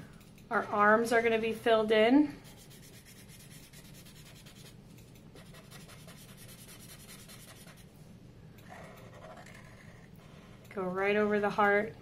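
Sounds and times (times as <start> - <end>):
marker scratching on paper: 2.4 - 4.8, 5.4 - 7.9, 8.7 - 10.4.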